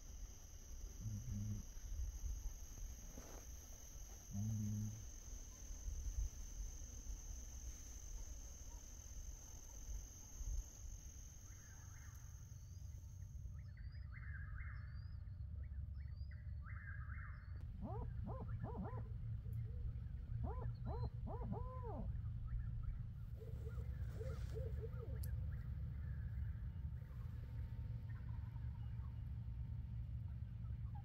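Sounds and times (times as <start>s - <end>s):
insects: 0.0s - 31.0s
owl hooting: 17.6s - 25.7s.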